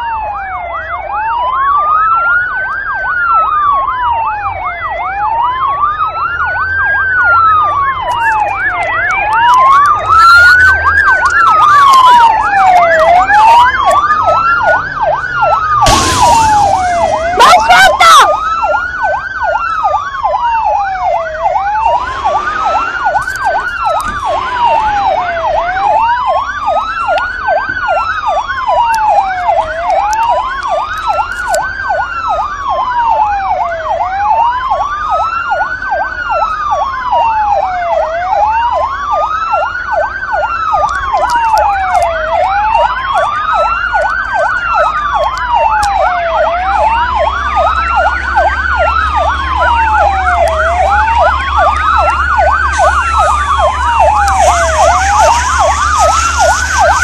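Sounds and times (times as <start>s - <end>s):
emergency siren wailing: 0.0s - 57.0s
low rumble: 21.5s - 26.4s.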